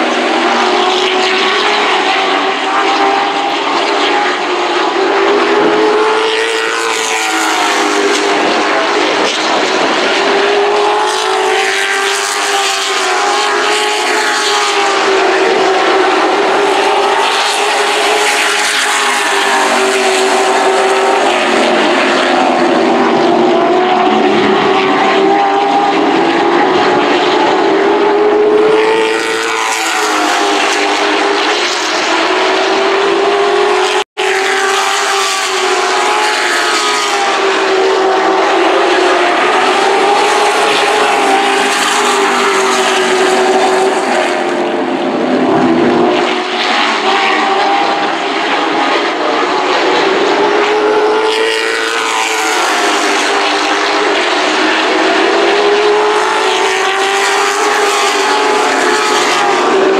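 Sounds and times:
race truck engines: 0.0s - 59.9s.

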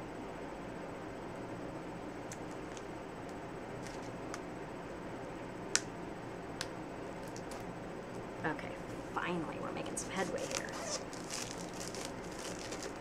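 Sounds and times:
fingers picking at plastic wrapping: 10.3s - 13.0s.

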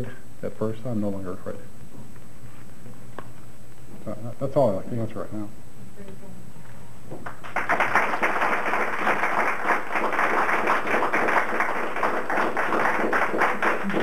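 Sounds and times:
audience applauding: 7.2s - 14.0s.

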